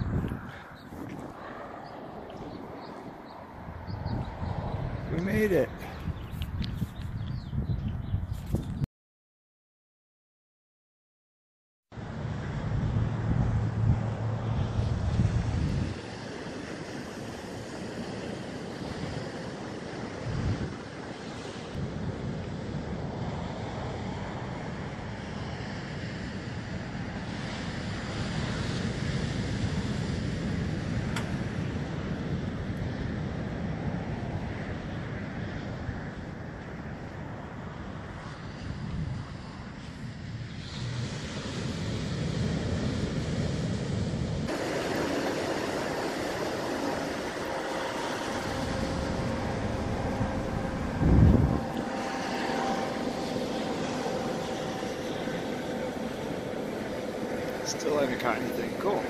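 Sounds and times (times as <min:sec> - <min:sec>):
wind buffeting microphone: 0:00.0 - 0:08.9, 0:12.0 - 0:59.0
surf washing onto beach: 0:12.0 - 0:35.8, 0:36.8 - 0:59.0.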